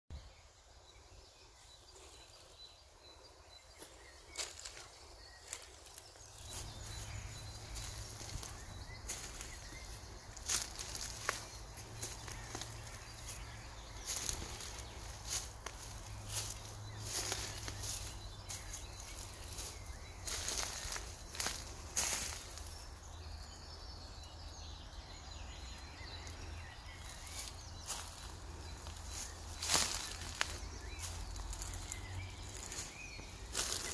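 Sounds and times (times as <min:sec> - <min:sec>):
faint bird chirps: 0:00.1 - 0:33.9.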